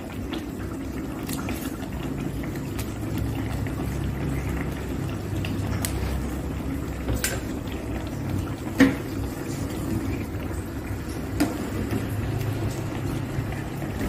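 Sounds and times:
broth simmering in a pot: 0.0s - 14.0s
metal ladle clinking on pot: 7.1s - 7.5s.

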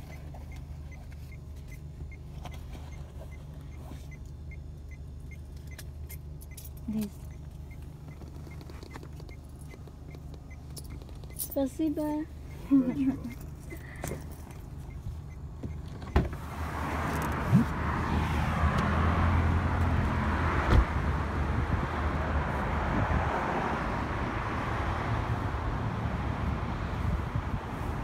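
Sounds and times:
road traffic noise: 0.0s - 28.0s
car door shutting: 15.6s - 17.8s, 20.6s - 21.0s.

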